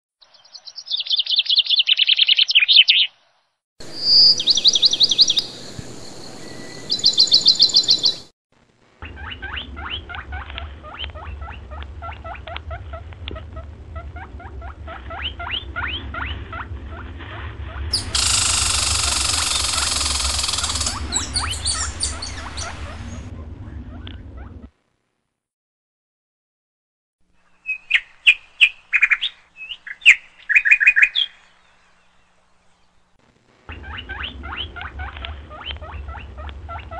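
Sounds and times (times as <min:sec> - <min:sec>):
low hum: 0:03.8 - 0:24.7
loud hiss: 0:17.9 - 0:23.2
squirrel rattling calls: 0:17.9 - 0:23.3
fast clicking call: 0:18.0 - 0:21.9.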